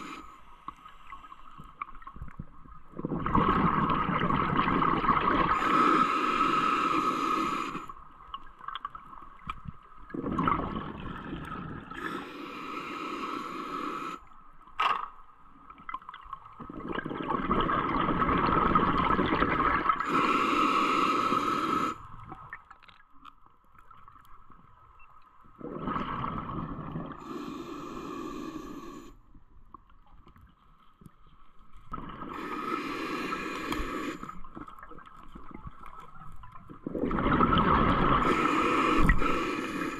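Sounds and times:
regulator inhale hiss: 0:00.0 - 0:01.4, 0:05.5 - 0:08.1, 0:11.9 - 0:14.5, 0:20.0 - 0:22.2, 0:27.1 - 0:29.2, 0:32.3 - 0:34.6, 0:38.2 - 0:39.9
exhaled bubbles rushing: 0:03.0 - 0:05.6, 0:10.1 - 0:12.0, 0:16.6 - 0:20.1, 0:25.6 - 0:27.2, 0:36.5 - 0:38.4.

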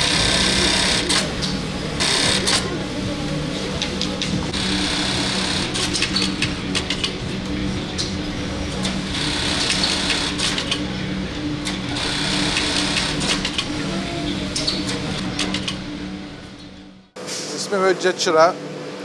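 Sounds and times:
sewing machine hum: 0:00.0 - 0:03.4, 0:04.5 - 0:07.2, 0:08.8 - 0:10.8, 0:11.6 - 0:15.8
sewing machine whirring: 0:02.0 - 0:02.8, 0:04.5 - 0:07.2, 0:08.8 - 0:10.8, 0:11.6 - 0:15.8.

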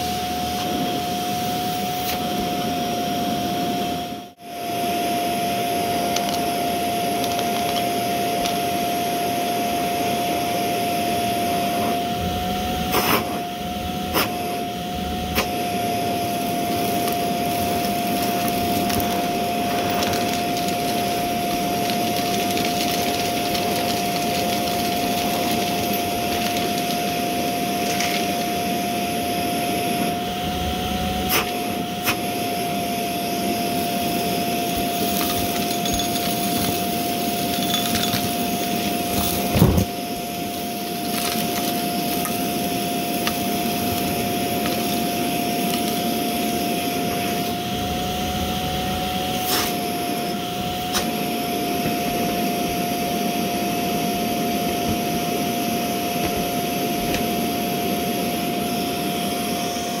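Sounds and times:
vacuum cleaner running: 0:00.0 - 1:00.0
debris clicks and knock: 0:35.0 - 0:39.5.

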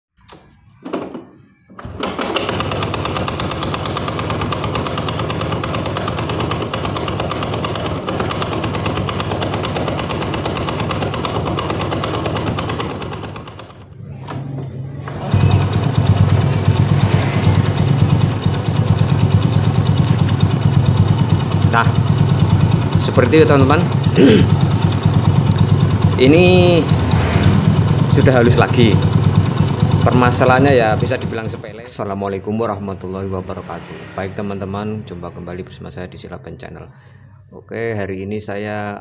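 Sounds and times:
motorcycle engine idling with knock: 0:03.1 - 0:13.3, 0:15.6 - 0:23.0, 0:23.9 - 0:26.2
engine idling smoothly: 0:15.6 - 0:27.0.

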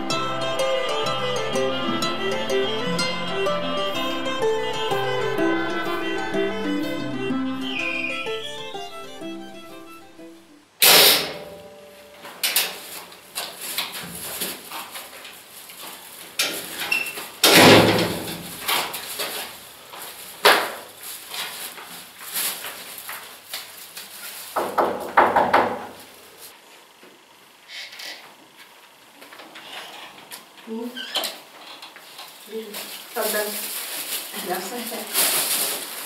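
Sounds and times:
door banging: 0:17.4 - 0:18.6.

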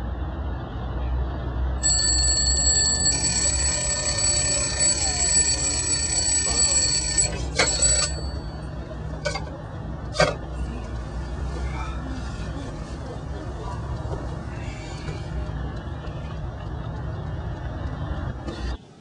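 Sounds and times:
alarm clock ringing: 0:01.8 - 0:09.4.

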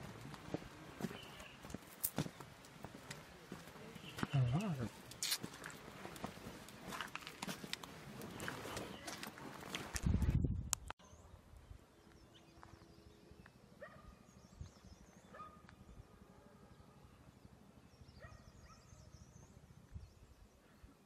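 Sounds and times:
distant birds chirping: 0:00.3 - 0:09.3, 0:10.8 - 0:21.0.

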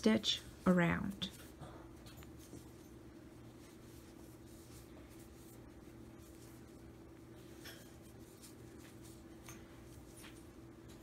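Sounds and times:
steady low hum: 0:00.0 - 0:11.0
crochet hook rubbing yarn: 0:03.6 - 0:10.6.

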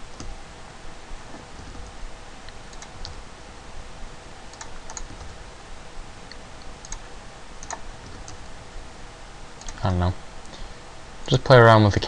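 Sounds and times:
faint steady hum: 0:00.0 - 0:12.0
keyboard and mouse clicking: 0:02.6 - 0:03.2, 0:04.5 - 0:05.4, 0:06.3 - 0:07.0, 0:07.6 - 0:08.4, 0:09.6 - 0:09.8.

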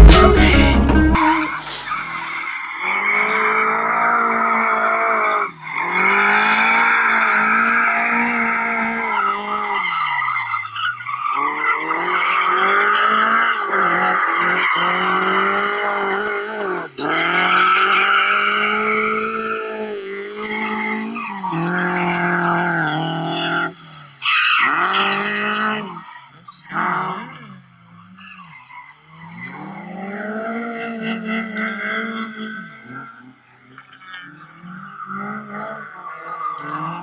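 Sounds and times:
music: 0:00.0 - 0:01.9
rally car engine revving: 0:00.0 - 0:37.0.

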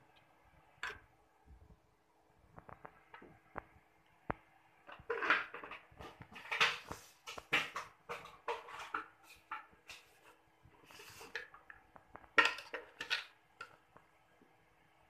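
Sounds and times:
wok knocking and clinking: 0:12.4 - 0:13.8.

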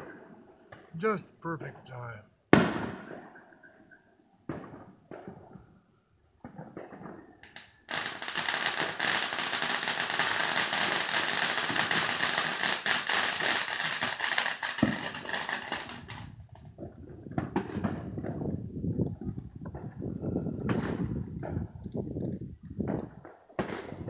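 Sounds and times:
fireworks crackling: 0:06.5 - 0:16.9.

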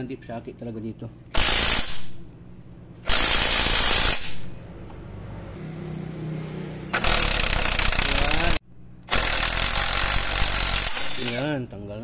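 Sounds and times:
impact wrench hammering: 0:01.3 - 0:02.2, 0:03.0 - 0:04.5, 0:06.9 - 0:11.4.

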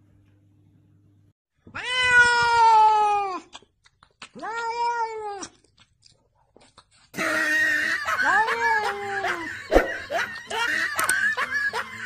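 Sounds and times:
cat meowing: 0:04.4 - 0:05.6.

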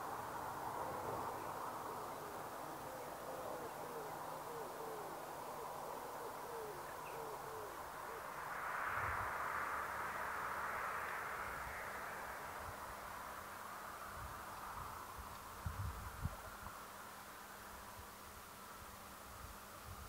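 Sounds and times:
outdoor background hiss: 0:00.0 - 0:20.0
bird hooting: 0:00.8 - 0:08.4.

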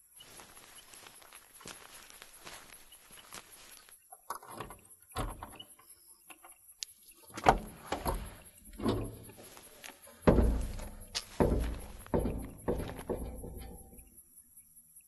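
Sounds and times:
knocks and thuds: 0:07.4 - 0:14.2.

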